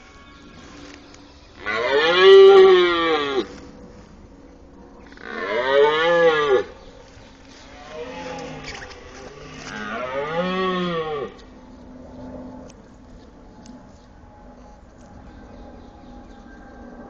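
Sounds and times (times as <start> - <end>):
deer stag roaring: 1.6 - 3.6, 5.2 - 6.7, 7.8 - 11.4.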